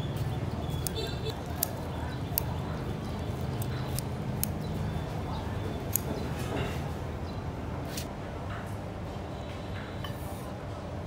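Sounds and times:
scissors snipping: 0.7s - 4.6s, 5.9s - 6.1s.

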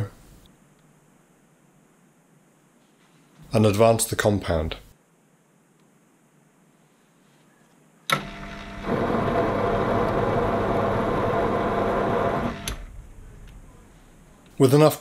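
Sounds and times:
lathe tool cutting steel: 8.2s - 13.0s
lathe motor running: 8.2s - 14.2s
lathe switch click: 12.6s - 13.6s.

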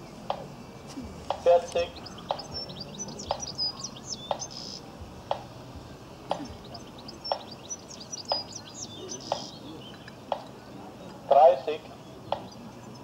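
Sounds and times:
small birds chirping: 0.0s - 13.0s
sharp repeating tick: 1.2s - 3.6s, 4.2s - 4.6s, 5.2s - 5.5s.

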